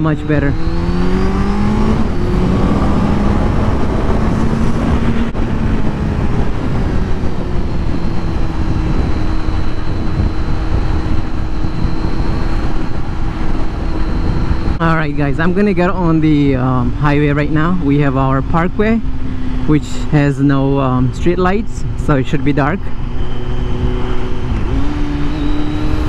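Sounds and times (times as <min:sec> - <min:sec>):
motorcycle engine revving: 0:00.0 - 0:14.8, 0:18.3 - 0:26.0
riding wind rushing: 0:00.0 - 0:26.0.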